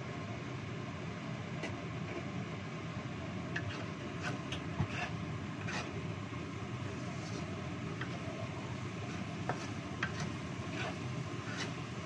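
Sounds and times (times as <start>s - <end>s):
food sizzling in a wok: 3.5s - 12.0s
spatula scraping and knocking pan: 3.6s - 6.0s, 7.1s - 8.2s, 9.0s - 11.9s.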